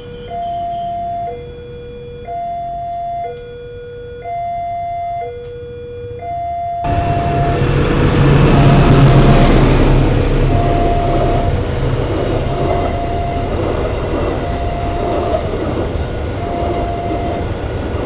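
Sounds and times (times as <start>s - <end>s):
level crossing warning bell: 0.0s - 18.0s
train rushing and rumbling: 6.9s - 18.0s.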